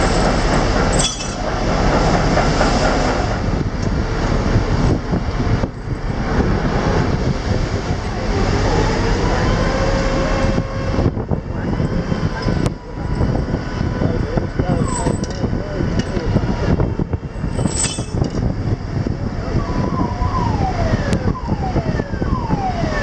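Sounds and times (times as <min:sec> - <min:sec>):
sea water churning: 0:00.0 - 0:15.0
ship machinery rumble: 0:00.0 - 0:23.0
wind rushing: 0:00.0 - 0:23.0.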